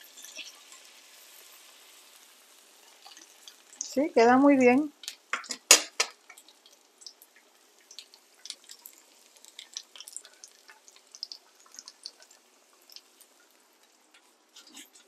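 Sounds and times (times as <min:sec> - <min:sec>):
oil crackling and popping: 0:00.0 - 0:04.0, 0:04.6 - 0:15.0
spatula clacking: 0:04.6 - 0:07.2, 0:07.8 - 0:15.0.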